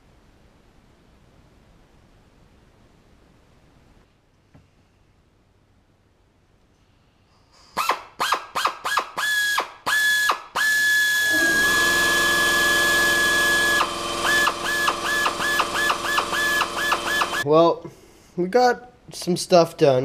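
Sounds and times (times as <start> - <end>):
electric drill whining: 8.2 - 17.5.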